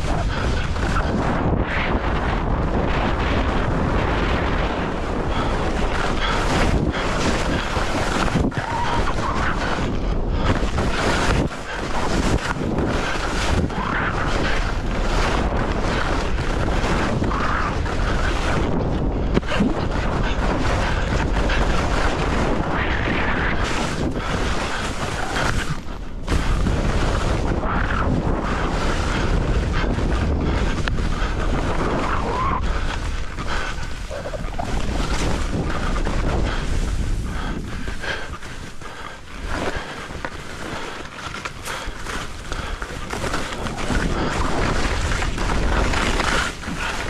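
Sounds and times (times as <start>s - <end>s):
wind buffeting microphone: 0.0s - 47.0s
skis hissing over snow: 10.5s - 18.6s, 19.9s - 47.0s.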